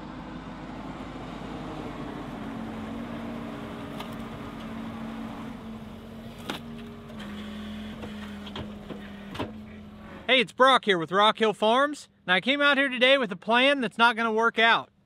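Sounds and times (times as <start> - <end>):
diesel engine running under load: 0.0 - 10.5.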